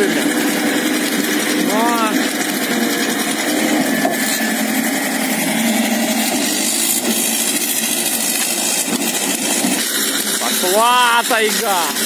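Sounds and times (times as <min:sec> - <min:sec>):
tractor engine running: 0:00.0 - 0:12.0.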